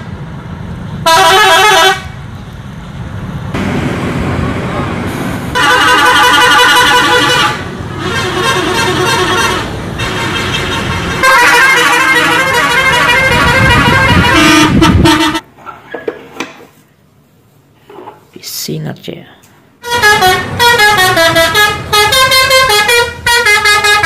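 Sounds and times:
rumble of passing buses: 0:00.0 - 0:24.0
multi-tone musical bus horns: 0:01.0 - 0:02.3, 0:05.5 - 0:15.5, 0:19.8 - 0:24.0.

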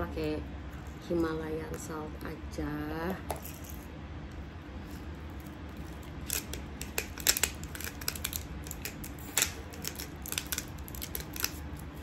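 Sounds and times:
salt grinder crunching crystals: 0:05.4 - 0:12.0.

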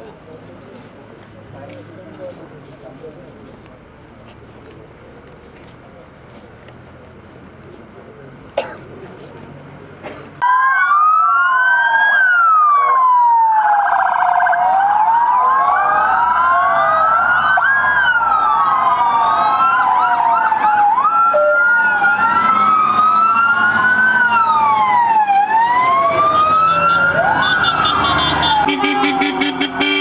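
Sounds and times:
fast siren yelp: 0:10.4 - 0:30.0
sirens wailing: 0:10.4 - 0:30.0.

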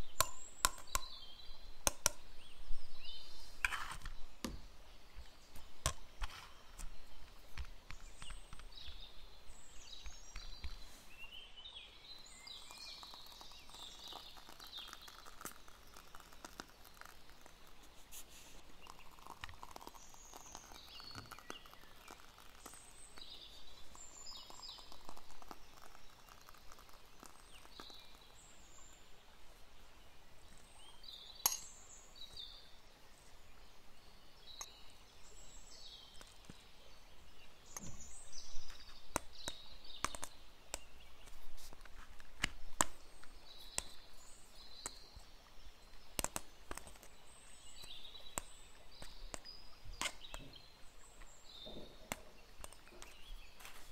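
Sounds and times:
birds chirping: 0:00.0 - 0:29.4, 0:30.0 - 0:53.9
plastic cups and lids clicking: 0:00.2 - 0:01.2.

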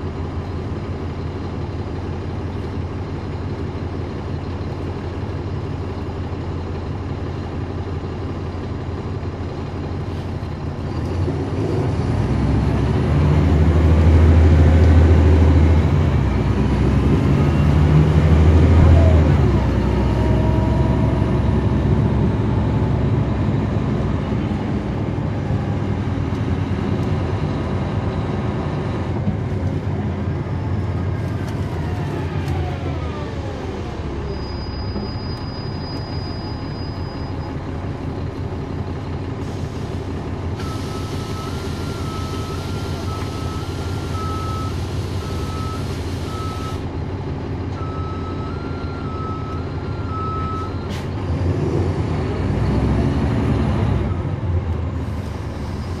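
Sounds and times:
bus engine drone: 0:00.0 - 0:56.0.

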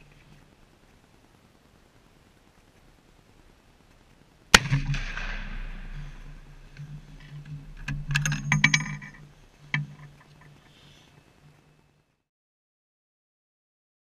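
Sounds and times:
very loud rifle shot with echo: 0:04.5 - 0:08.8
metallic clicks and clatter: 0:04.9 - 0:10.6.

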